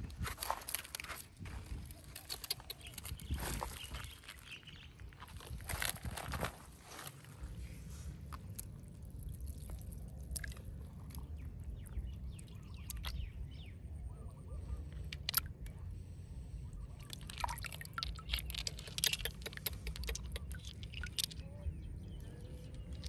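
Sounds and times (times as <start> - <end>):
stones clicking together: 17.1 - 21.5, 22.4 - 23.0.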